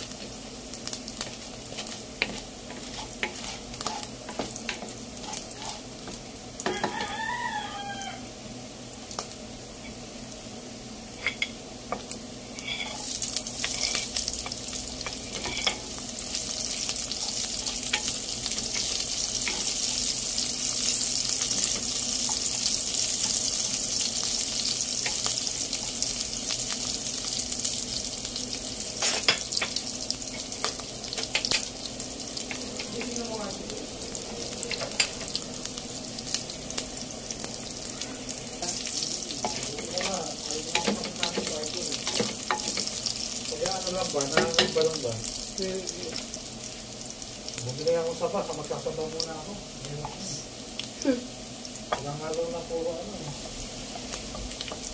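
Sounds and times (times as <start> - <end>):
meat sizzling in hot oil: 0.0 - 54.9.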